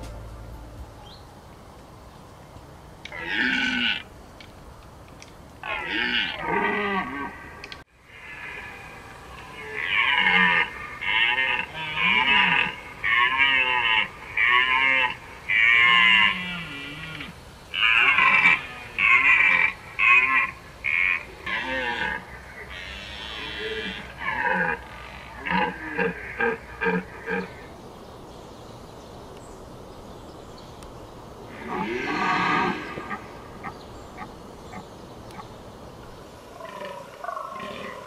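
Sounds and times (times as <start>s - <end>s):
deer stag roaring: 5.6s - 7.4s, 8.1s - 27.6s, 31.5s - 33.4s.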